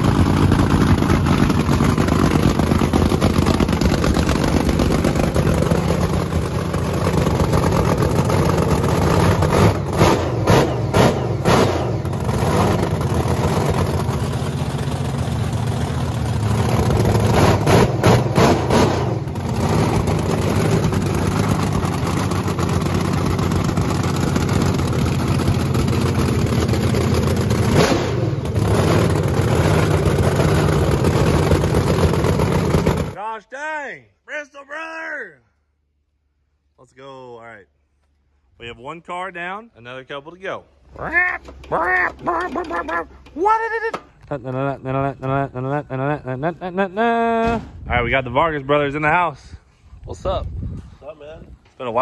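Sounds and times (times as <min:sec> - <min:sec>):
car engine fast idle: 0:00.0 - 0:09.5
car engine quick revs: 0:09.2 - 0:13.0, 0:17.2 - 0:20.2, 0:27.7 - 0:29.8.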